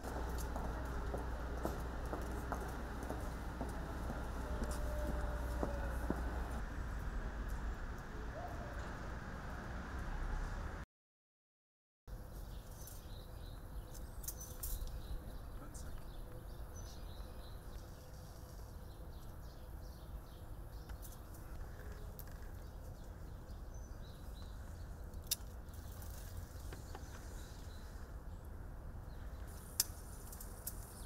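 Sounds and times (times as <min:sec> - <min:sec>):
outdoor background rumble: 0:00.0 - 0:10.8
small birds chirping: 0:12.3 - 0:31.0.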